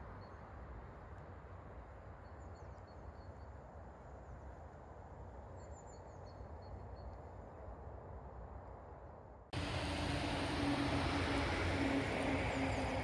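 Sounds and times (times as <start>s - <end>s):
low rumbling noise: 9.6s - 13.0s.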